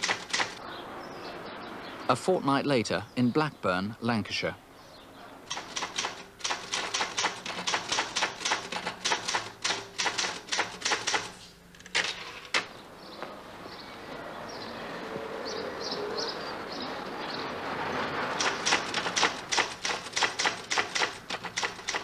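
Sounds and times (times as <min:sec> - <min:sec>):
typewriter keys clicking: 0:00.0 - 0:00.6, 0:05.5 - 0:12.7, 0:18.3 - 0:22.0
outdoor background hiss: 0:00.0 - 0:22.0.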